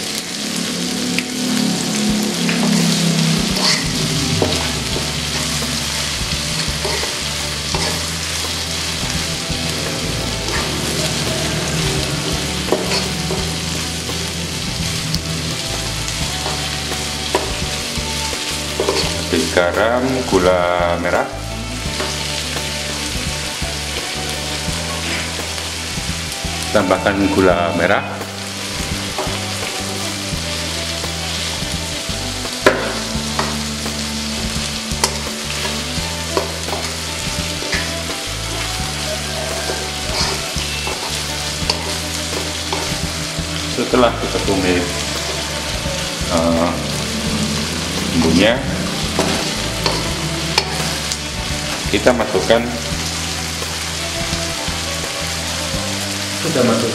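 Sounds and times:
vegetables sizzling in hot oil: 0.0 - 56.9
metal spatula scraping a wok: 1.9 - 19.5, 35.0 - 43.1, 46.8 - 51.8.

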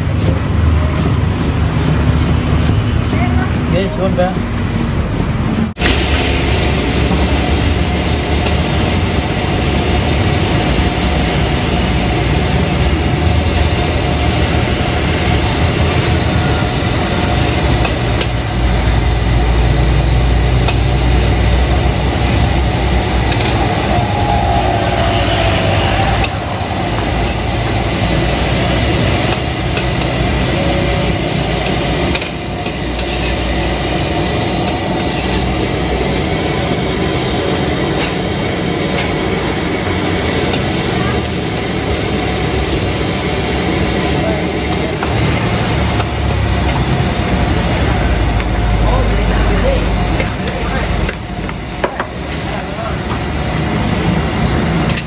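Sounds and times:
ladle scraping and knocking wok: 0.0 - 3.4, 4.3 - 39.4
gas burner roaring: 0.0 - 55.0
eggs frying in oil: 5.8 - 23.6.

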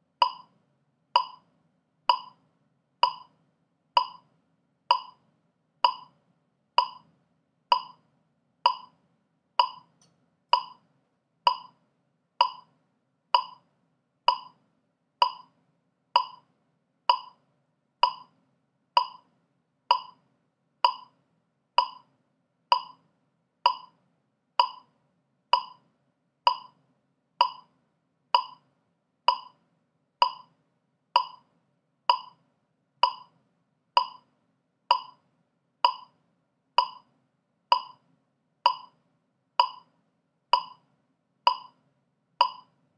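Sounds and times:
metronome clicking: 0.2 - 0.5, 1.2 - 1.4, 2.1 - 2.4, 3.0 - 3.3, 4.0 - 4.2, 4.9 - 5.2, 5.8 - 6.1, 6.8 - 7.0, 7.7 - 8.0, 8.7 - 8.9, 9.6 - 10.8, 11.5 - 11.8, 12.4 - 12.7, 13.4 - 13.6, 14.3 - 14.6, 15.2 - 15.5, 16.2 - 16.4, 17.1 - 17.4, 18.0 - 18.3, 19.0 - 19.3, 19.9 - 20.2, 20.8 - 21.1, 21.8 - 22.0, 22.7 - 23.0, 23.7 - 23.9, 24.6 - 24.9, 25.6 - 25.8, 26.5 - 26.7, 27.4 - 27.7, 28.4 - 28.6, 29.3 - 29.6, 30.2 - 30.5, 31.2 - 31.4, 32.1 - 32.4, 33.0 - 33.3, 34.0 - 34.2, 34.9 - 35.2, 35.8 - 36.1, 36.8 - 37.0, 37.7 - 38.0, 38.7 - 39.0, 39.6 - 39.9, 40.6 - 40.8, 41.5 - 41.8, 42.4 - 42.7.

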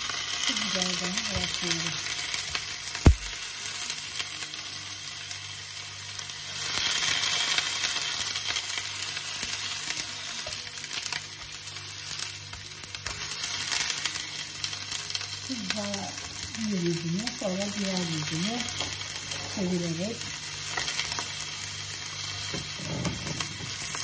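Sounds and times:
meat sizzling in a frying pan: 0.0 - 24.0.

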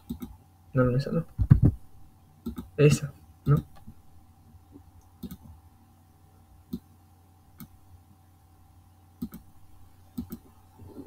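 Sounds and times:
computer mouse clicking: 0.0 - 0.4, 2.4 - 2.7, 5.0 - 5.5, 6.7 - 6.9, 7.6 - 7.8, 9.2 - 9.5, 10.1 - 10.5
faint electrical hum: 0.0 - 11.0.

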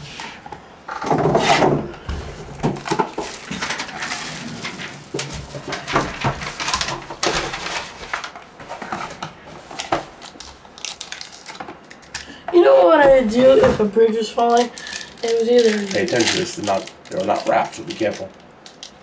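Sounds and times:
rustling: 13.2 - 19.0.

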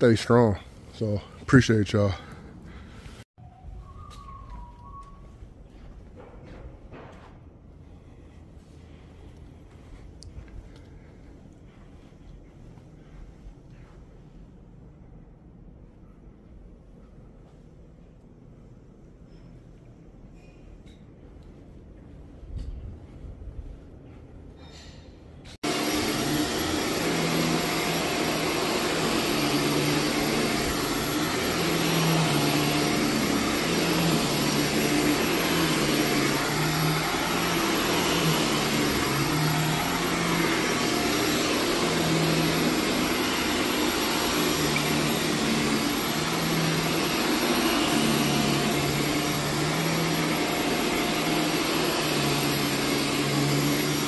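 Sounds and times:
vacuum cleaner on carpet: 25.5 - 54.0.

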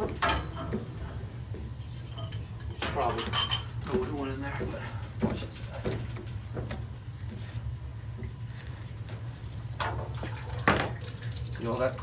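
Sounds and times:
steady low hum: 0.0 - 12.0
water running through a hose: 9.8 - 12.0.

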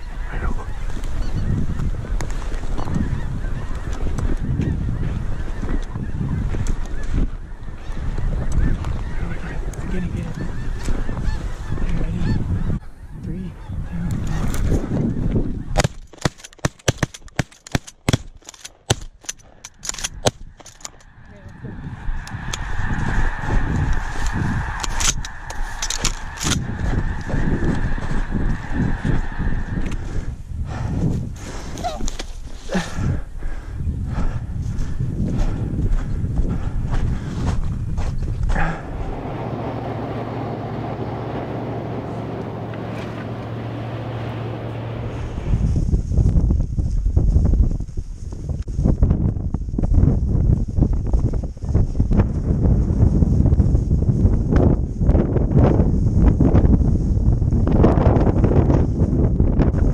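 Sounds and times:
road and tyre noise: 19.2 - 32.3, 35.6 - 46.1
low engine hum: 38.5 - 46.1
geese honking: 38.6 - 45.6.

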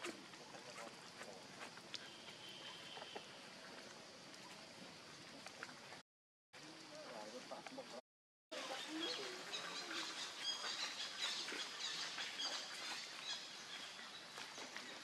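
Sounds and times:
birds chirping: 8.6 - 15.0.

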